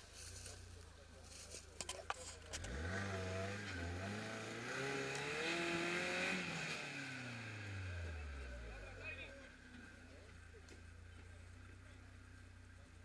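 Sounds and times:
engine revving under load: 0:02.5 - 0:09.0.

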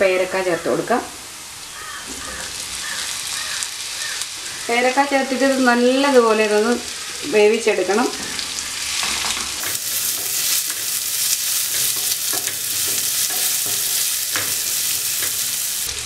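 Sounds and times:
fruit sizzling in hot oil: 0:00.0 - 0:16.0
wooden spatula scraping a pan: 0:08.2 - 0:15.6.

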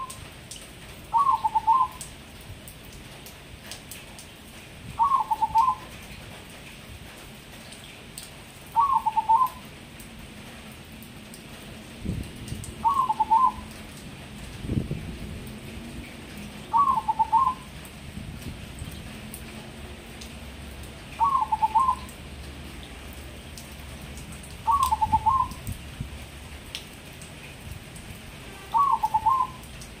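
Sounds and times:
dove cooing: 0:01.1 - 0:02.0, 0:05.0 - 0:05.8, 0:08.8 - 0:09.6, 0:12.8 - 0:13.6, 0:16.7 - 0:17.6, 0:21.2 - 0:22.1, 0:24.7 - 0:25.6, 0:28.7 - 0:29.7.

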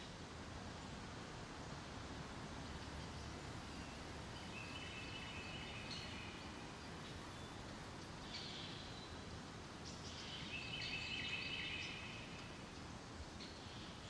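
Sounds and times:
faint outdoor ambience: 0:00.0 - 0:14.0.

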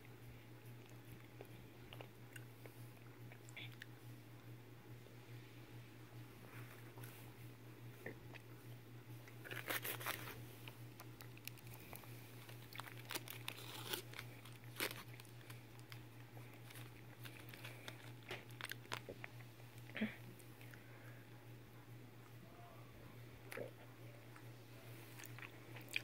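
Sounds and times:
foil wrapper crinkling and tearing: 0:09.4 - 0:19.2.

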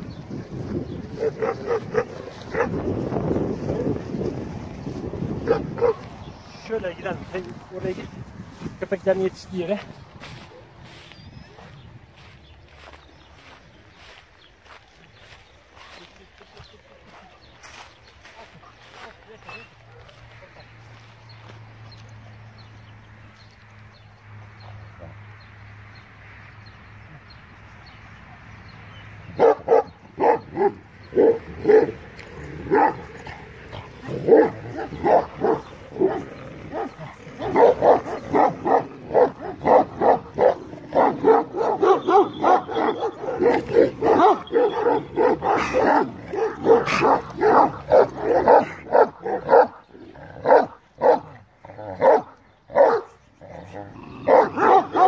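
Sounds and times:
dog barking rapidly: 0:01.1 - 0:02.8, 0:05.4 - 0:06.1, 0:29.4 - 0:32.0, 0:32.6 - 0:33.1, 0:33.8 - 0:49.8, 0:50.4 - 0:51.4, 0:52.0 - 0:53.1, 0:54.2 - 0:55.0.

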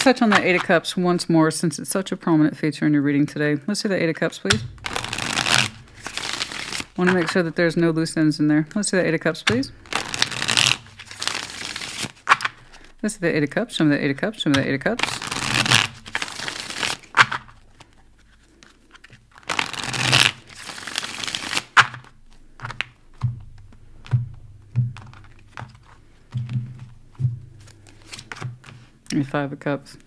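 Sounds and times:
cards riffle shuffling: 0:00.0 - 0:00.8, 0:04.5 - 0:07.5, 0:09.0 - 0:13.0, 0:14.5 - 0:24.1, 0:25.0 - 0:29.0
cards tapped on a table: 0:22.6 - 0:28.8.

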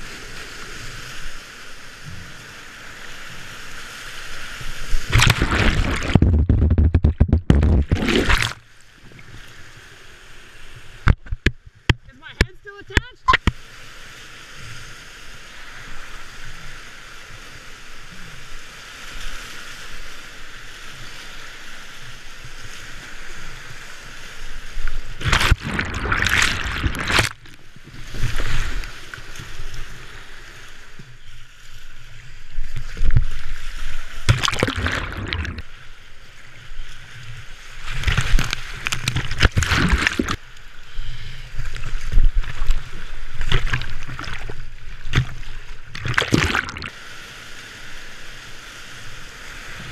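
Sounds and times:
water splashing over boat: 0:04.7 - 0:09.3, 0:22.0 - 0:30.5, 0:32.2 - 0:36.0, 0:37.6 - 0:40.5, 0:41.6 - 0:47.1
whitewater rushing: 0:05.1 - 0:08.6, 0:25.2 - 0:27.5, 0:34.3 - 0:35.8.

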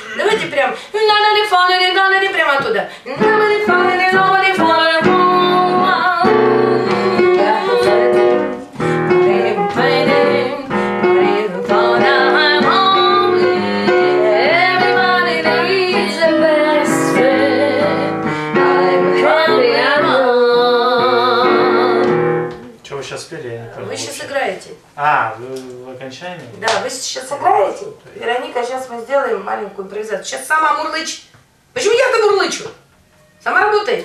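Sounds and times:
women singing jazz: 0:00.9 - 0:22.6
jazz piano: 0:03.2 - 0:24.2.

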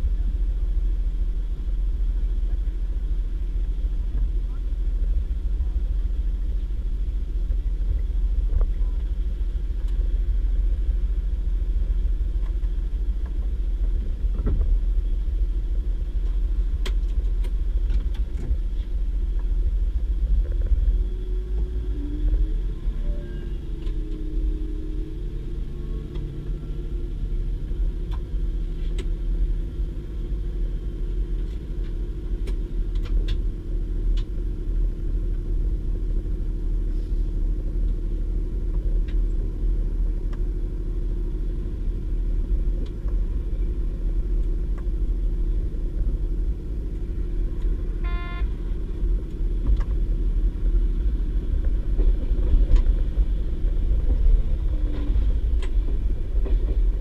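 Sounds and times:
diesel engine hum: 0:00.0 - 0:57.0
train wheels on track: 0:00.0 - 0:57.0
brief high tone: 0:22.9 - 0:23.7, 0:48.0 - 0:48.6.

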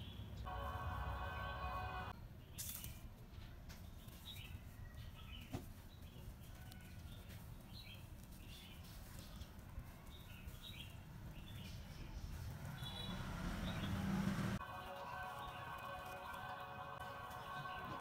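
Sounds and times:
small birds chirping: 0:02.1 - 0:18.0.

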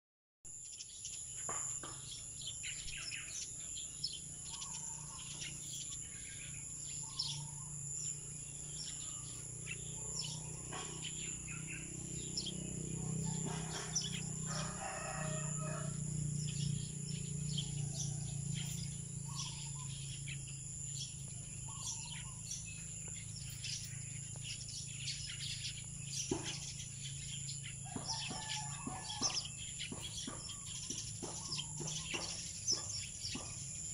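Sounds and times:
small birds chirping: 0:00.6 - 0:33.9
rooster crowing: 0:12.8 - 0:16.6, 0:27.8 - 0:30.1.

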